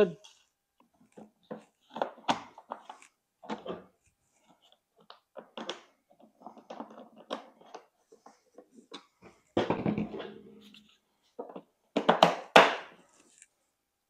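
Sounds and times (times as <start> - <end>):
plastic clicks taps and scrapes: 4.6 - 9.2.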